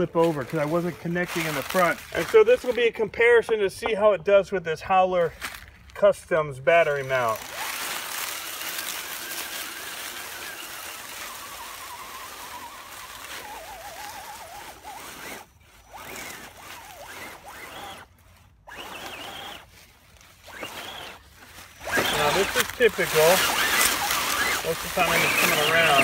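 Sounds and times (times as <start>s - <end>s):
dry leaves rustling under tyres: 0.0s - 3.2s, 5.2s - 26.0s
toy car motor and gear whine: 6.9s - 26.0s.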